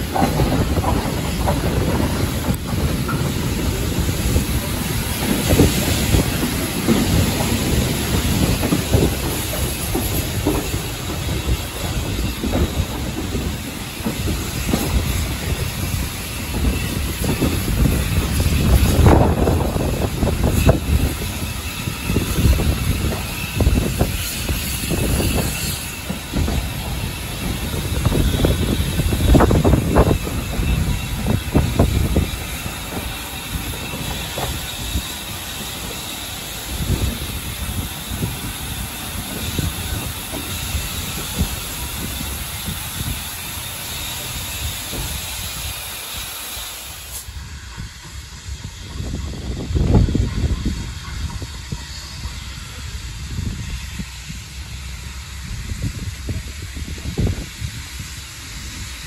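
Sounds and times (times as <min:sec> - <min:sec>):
train wheels knocking on rail joints: 0:00.0 - 0:46.4
train rumble and hiss: 0:00.0 - 0:59.0.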